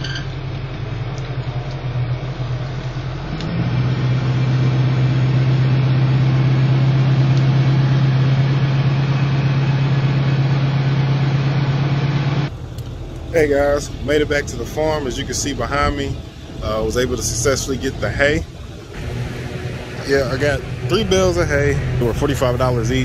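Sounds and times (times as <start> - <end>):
pickup truck engine running: 0.0 - 23.0.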